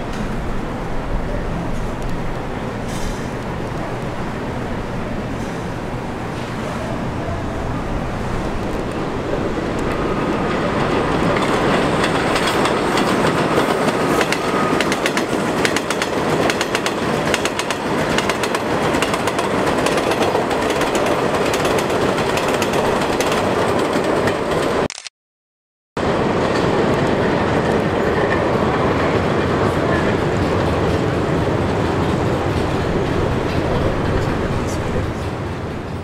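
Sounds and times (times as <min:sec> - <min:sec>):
subway train rolling past: 0:00.0 - 0:24.8, 0:26.0 - 0:36.0
wheels clicking over rail joints: 0:08.5 - 0:24.8.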